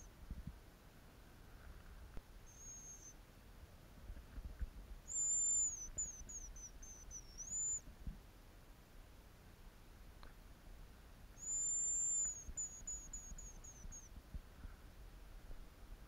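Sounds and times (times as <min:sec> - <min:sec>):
high thin grouse whistle: 0:02.4 - 0:03.2, 0:05.1 - 0:07.8, 0:11.4 - 0:14.1.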